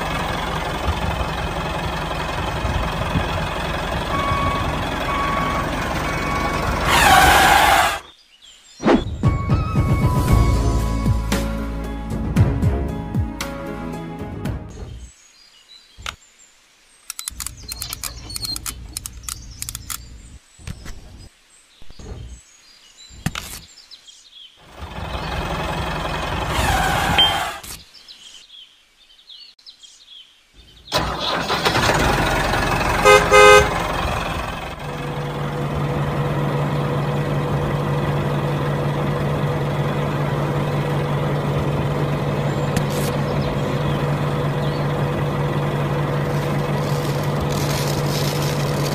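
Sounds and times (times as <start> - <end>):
toy horn toot: 26.6 - 27.6, 33.0 - 33.7.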